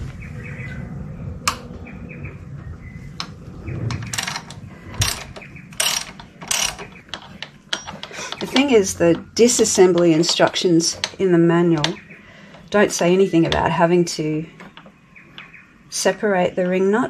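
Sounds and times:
ratchet wrench clicking: 5.8s - 8.7s.

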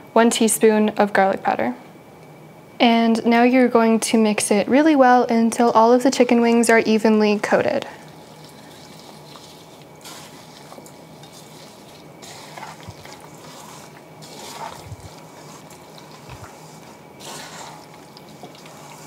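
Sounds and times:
wet meat being tossed in bowl: 8.0s - 19.0s.

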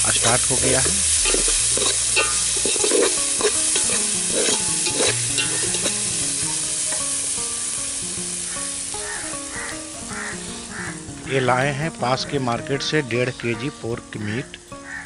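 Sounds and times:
onions sizzling in oil: 0.0s - 15.0s
spoon scraping a pot: 0.2s - 6.1s.

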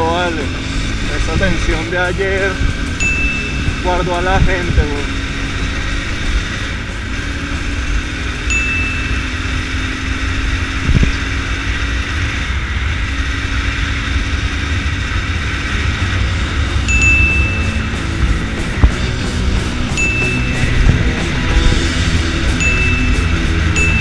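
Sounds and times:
motorcycle engine cruising: 0.0s - 24.0s
wind rumble on microphone: 0.0s - 24.0s
short high beep: 20.0s - 20.9s, 22.6s - 24.0s.

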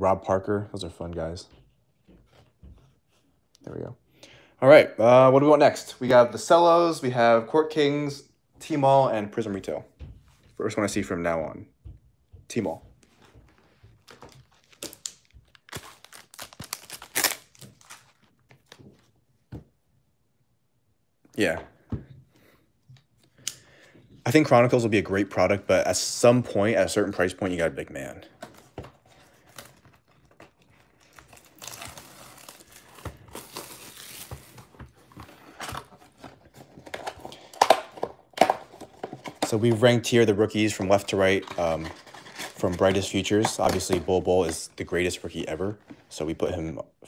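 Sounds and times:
wrapper crinkling and tearing: 14.0s - 18.8s, 29.4s - 34.8s.

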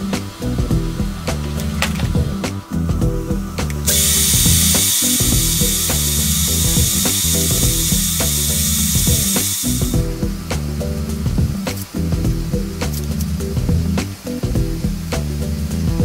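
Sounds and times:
background music: 0.0s - 16.0s
cordless drill whining: 3.9s - 10.0s.

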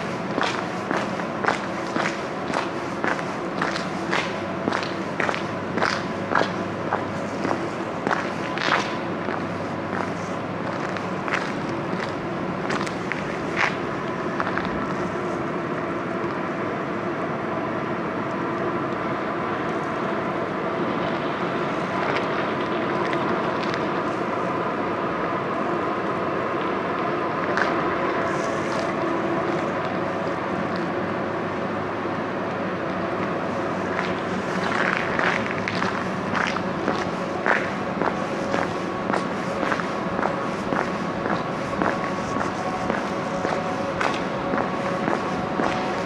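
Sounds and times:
footsteps: 0.0s - 15.2s, 33.2s - 46.0s
mechanical hum: 0.0s - 46.0s.

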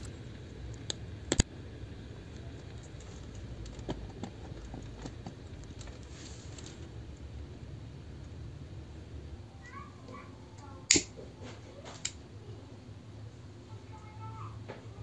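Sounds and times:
stove flame rushing: 0.0s - 9.4s, 10.6s - 13.5s.

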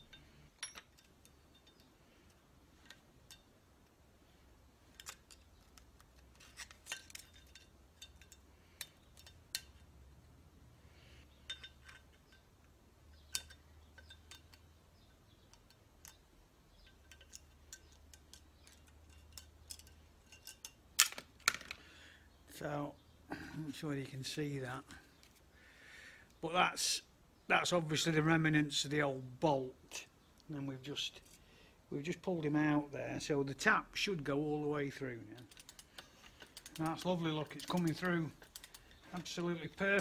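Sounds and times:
metal tools clicking and scraping: 0.0s - 10.2s, 11.2s - 21.8s, 31.1s - 31.4s, 35.0s - 40.0s.

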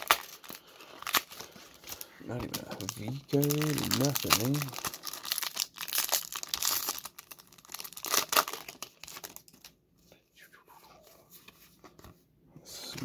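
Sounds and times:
foil wrappers crinkling: 0.0s - 9.8s.

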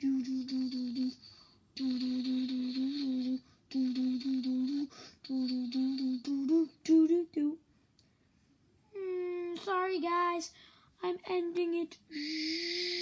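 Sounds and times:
child humming: 0.0s - 7.6s, 8.9s - 9.6s, 12.1s - 13.0s.

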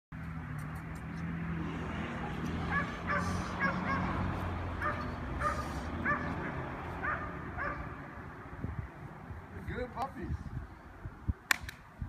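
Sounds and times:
puppies yipping: 2.3s - 7.9s.

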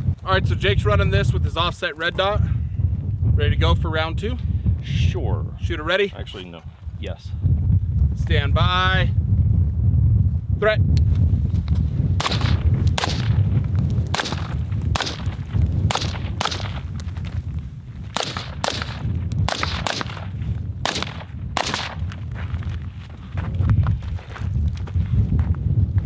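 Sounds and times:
low rumble: 11.3s - 22.8s
rifle shots: 12.2s - 17.1s, 18.2s - 22.0s.

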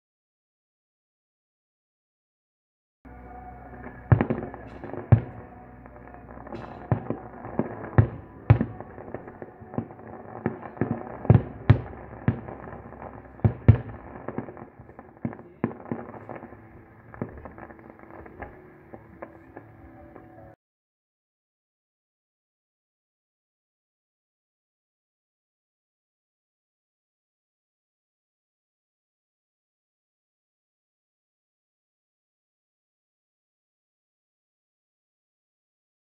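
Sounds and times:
rumbling haze: 3.1s - 20.6s
fireworks bursting with sharp bangs: 3.8s - 20.6s.

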